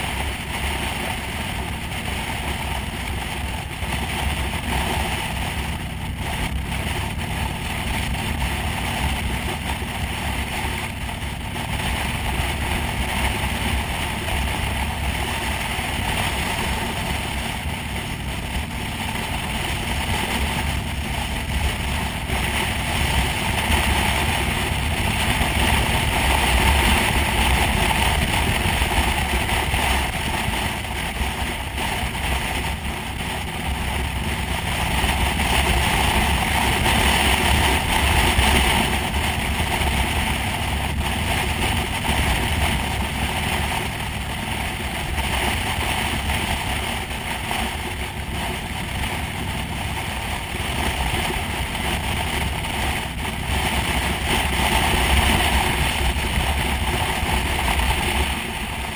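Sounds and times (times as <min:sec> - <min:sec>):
motorcycle engine drone: 0:00.0 - 0:58.9
wind rush over microphone: 0:00.0 - 0:58.9.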